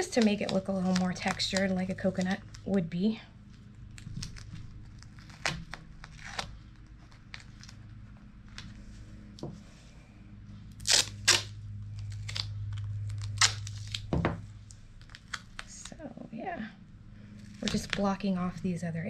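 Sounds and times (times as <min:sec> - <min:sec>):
adhesive tape ripping: 0:00.0 - 0:02.7, 0:03.8 - 0:07.9, 0:10.7 - 0:15.9, 0:17.4 - 0:18.1
handling clicks and crinkles: 0:00.0 - 0:09.4.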